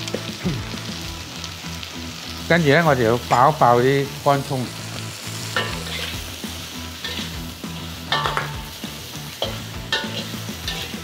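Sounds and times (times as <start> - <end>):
food sizzling in hot oil: 0.0 - 11.0
metal ladle clanking on wok: 5.6 - 6.2, 7.0 - 7.4, 8.1 - 8.8, 9.4 - 11.0.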